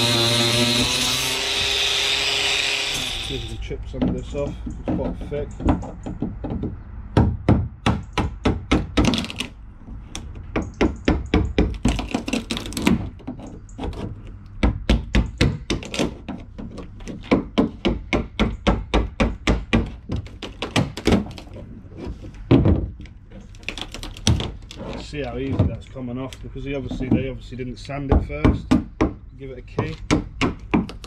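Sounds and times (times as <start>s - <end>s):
scraping: 20.1s - 27.4s.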